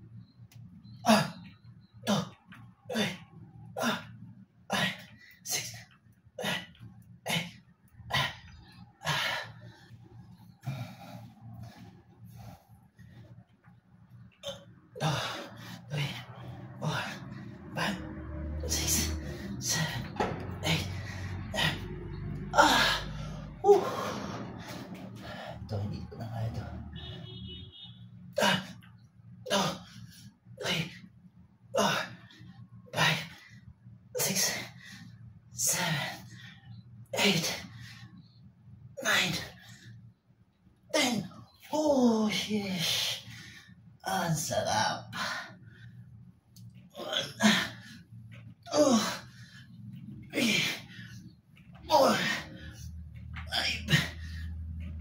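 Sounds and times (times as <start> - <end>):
steady low hum: 0.0 - 55.0
man breathing forcefully: 10.6 - 13.5, 15.0 - 25.7, 49.0 - 51.3.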